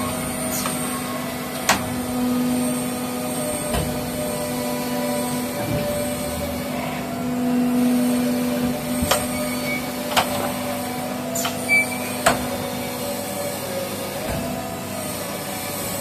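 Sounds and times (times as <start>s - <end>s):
hydraulic press humming: 0.0s - 16.0s.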